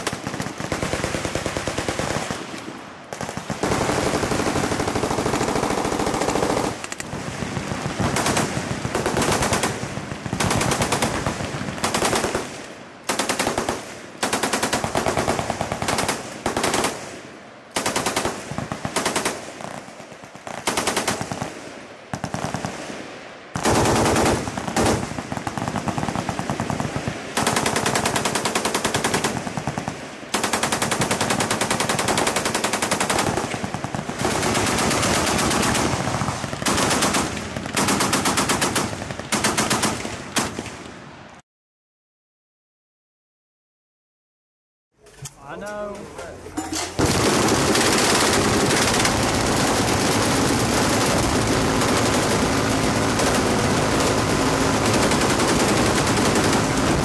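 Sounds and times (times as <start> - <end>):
machine gun bursts: 46.9 - 57.0.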